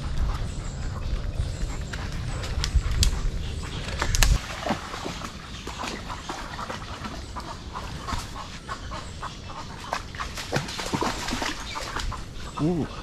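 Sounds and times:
branches clicking and snapping: 0:03.8 - 0:04.8
light splashing in shallow water: 0:03.9 - 0:08.4.

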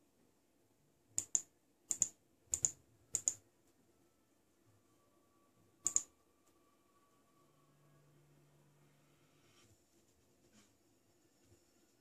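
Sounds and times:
computer mouse button clicks: 0:05.8 - 0:06.1.

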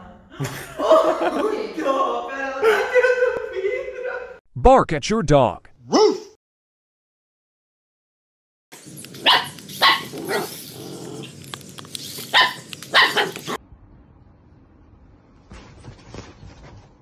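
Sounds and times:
dog barking: 0:05.8 - 0:06.4, 0:09.2 - 0:10.5, 0:12.3 - 0:13.6.

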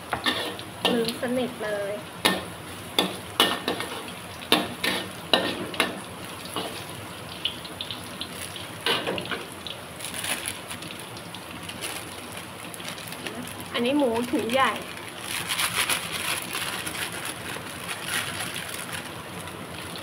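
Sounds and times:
garlic sizzling in oil: 0:00.0 - 0:20.0
metal spatula scraping wok: 0:00.1 - 0:01.1, 0:02.3 - 0:06.0.

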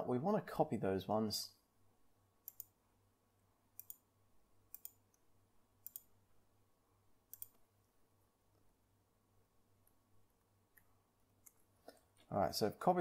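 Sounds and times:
computer mouse clicks: 0:02.4 - 0:02.8, 0:03.8 - 0:04.0, 0:04.7 - 0:05.2, 0:05.8 - 0:06.1, 0:07.3 - 0:07.6.

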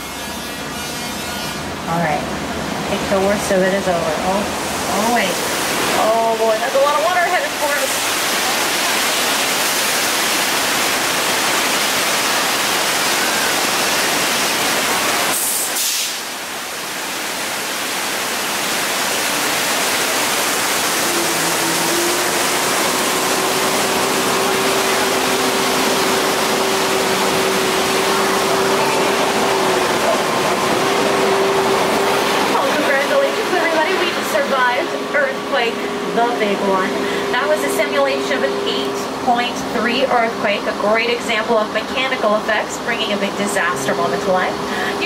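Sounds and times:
water pouring and spraying: 0:04.4 - 0:35.1.

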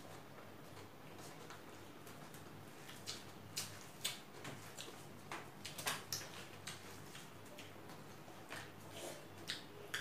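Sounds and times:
chewing smacks: 0:02.8 - 0:05.0, 0:09.4 - 0:10.0.

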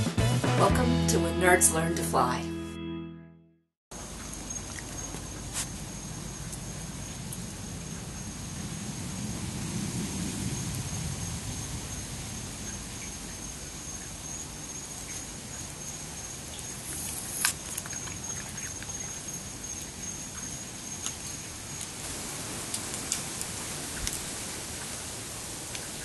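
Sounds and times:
steady hiss: 0:16.6 - 0:17.6, 0:21.5 - 0:26.0.

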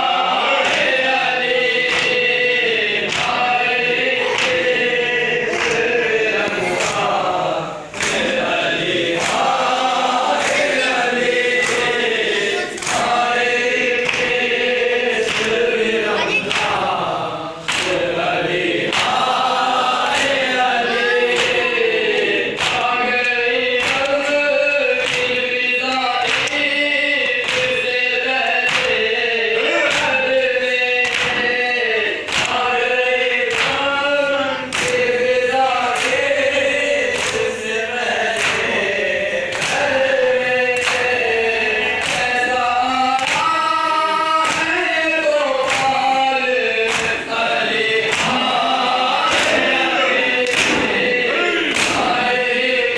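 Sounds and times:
men chanting in chorus: 0:00.0 - 0:52.9
hands slapping chests: 0:00.6 - 0:02.4, 0:03.0 - 0:03.6, 0:04.3 - 0:04.8, 0:05.5 - 0:07.2, 0:09.1 - 0:12.1, 0:12.8 - 0:13.3, 0:13.9 - 0:14.4, 0:15.2 - 0:15.6, 0:17.6 - 0:18.1, 0:18.8 - 0:20.5, 0:21.3 - 0:21.7, 0:22.5 - 0:23.0, 0:23.8 - 0:24.3, 0:25.0 - 0:27.8, 0:28.4 - 0:29.2, 0:31.0 - 0:31.6, 0:32.3 - 0:32.6, 0:33.5 - 0:33.9, 0:34.7 - 0:36.4, 0:38.2 - 0:41.3, 0:42.0 - 0:42.4, 0:43.1 - 0:43.6, 0:44.4 - 0:44.8, 0:45.6 - 0:46.1, 0:46.8 - 0:52.3.

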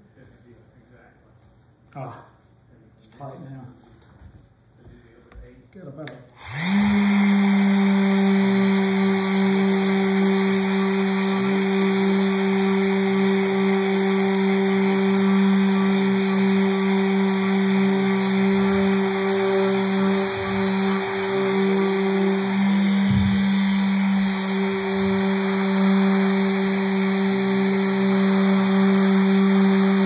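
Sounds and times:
orbital sander running: 0:06.4 - 0:30.0.

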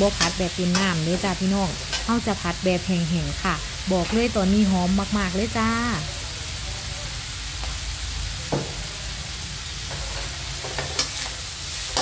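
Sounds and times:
spatula scraping stir-fry: 0:00.0 - 0:02.5, 0:09.7 - 0:12.0
shellfish sizzling in wok: 0:00.0 - 0:12.0.

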